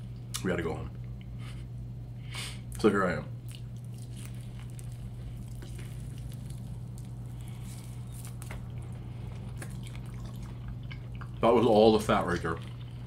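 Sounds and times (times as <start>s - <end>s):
low electrical hum: 0.0s - 13.0s
mouth chewing wet smacks: 3.4s - 11.5s.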